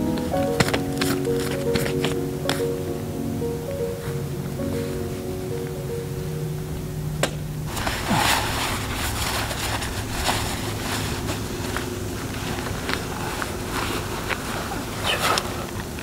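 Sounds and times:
background music: 0.0 - 8.4
low steady rumble: 0.0 - 16.0
jacket and straps rustling: 7.7 - 15.7.

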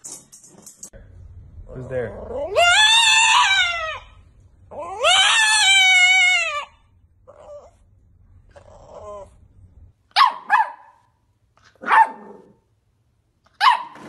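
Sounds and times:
dog howling: 2.1 - 7.8.

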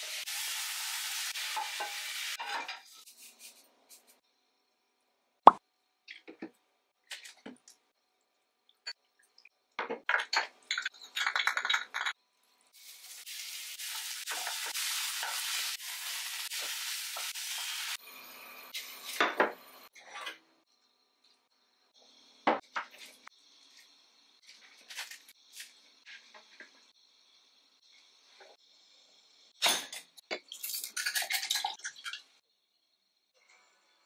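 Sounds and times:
steady sizzling: 0.0 - 4.2, 10.7 - 19.9
utensils clinking against pan: 1.6 - 2.9, 29.6 - 32.2.

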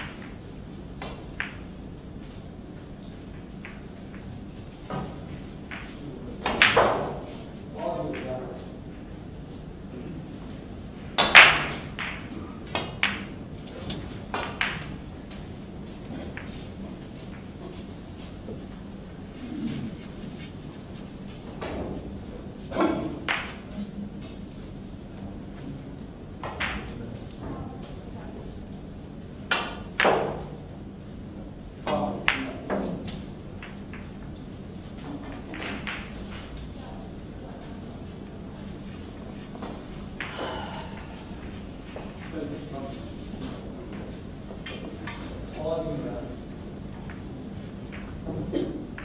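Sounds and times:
pool cue striking ball: 4.9 - 7.4, 11.1 - 13.4, 14.3 - 15.0, 21.4 - 23.7, 29.5 - 30.6, 35.1 - 36.5.

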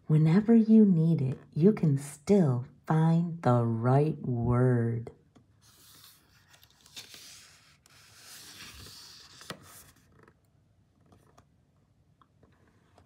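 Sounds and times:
hand brushing paper pages: 5.6 - 10.2.

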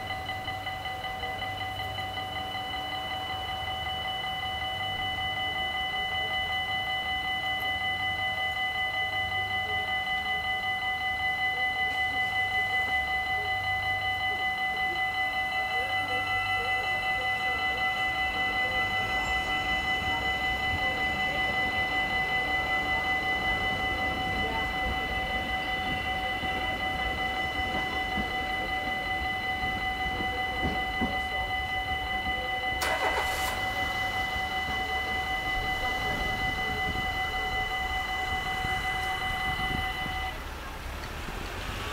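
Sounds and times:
level crossing bells ringing: 0.0 - 40.6
train rumbling past: 13.9 - 41.9.

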